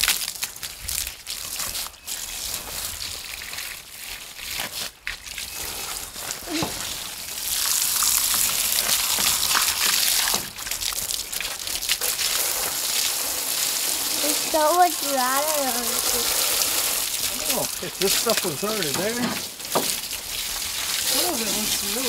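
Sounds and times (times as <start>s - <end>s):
hose spraying water on metal: 0.0s - 22.0s
water dripping: 0.0s - 22.0s.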